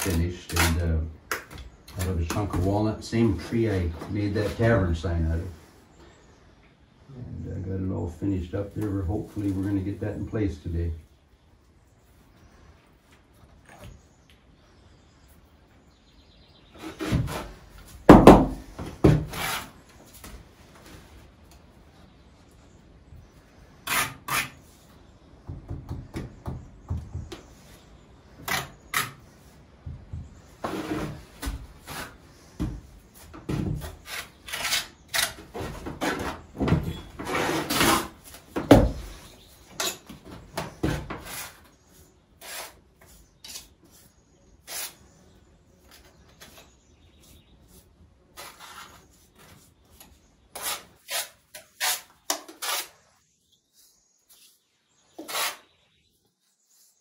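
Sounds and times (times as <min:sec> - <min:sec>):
trowel scraping mortar: 0:00.0 - 0:00.9, 0:23.8 - 0:24.7, 0:33.8 - 0:38.3, 0:40.8 - 0:41.7, 0:42.4 - 0:45.0, 0:47.7 - 0:49.7, 0:50.5 - 0:53.0, 0:55.1 - 0:55.8.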